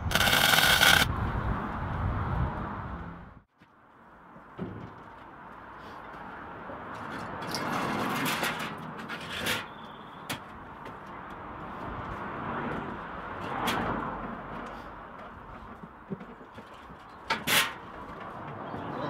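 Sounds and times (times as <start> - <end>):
wind noise on microphone: 0.0 - 3.4.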